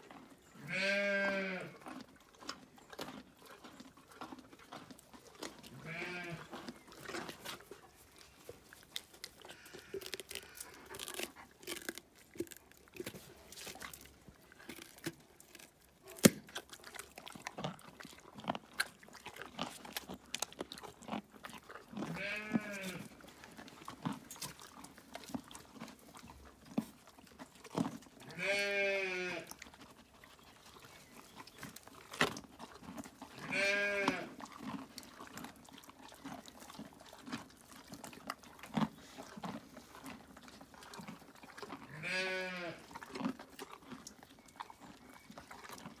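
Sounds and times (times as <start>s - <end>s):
horse crunching carrots: 0.0s - 46.0s
sheep bleating: 0.6s - 1.8s, 5.8s - 6.5s, 9.5s - 10.6s, 22.1s - 23.1s, 28.3s - 29.5s, 33.4s - 34.3s, 41.9s - 42.8s.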